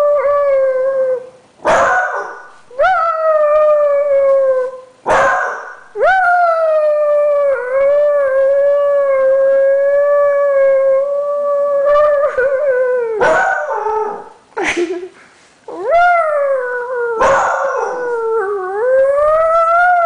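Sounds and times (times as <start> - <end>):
dog barking: 1.6 - 2.5, 5.1 - 5.8, 13.2 - 14.3, 17.2 - 18.0
dog howling: 6.0 - 14.3, 15.7 - 20.0.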